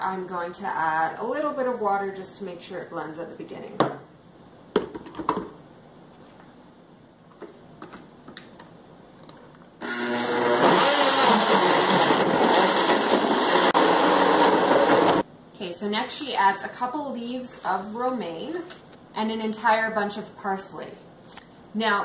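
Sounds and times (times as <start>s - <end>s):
blender motor running: 9.8s - 15.2s.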